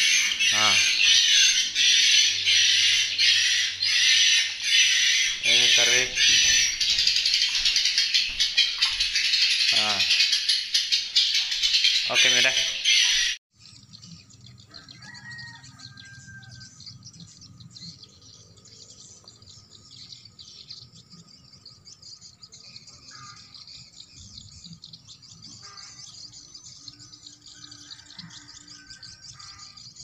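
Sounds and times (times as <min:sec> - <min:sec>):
recorded bird calls twittering: 0:00.0 - 0:30.0.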